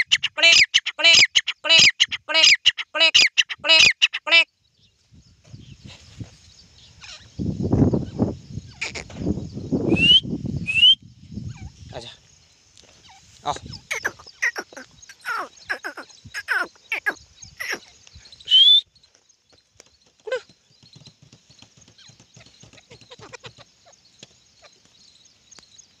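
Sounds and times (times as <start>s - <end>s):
bird short falling calls: 13.1s - 17.9s
loud rising whistle: 18.5s - 18.8s.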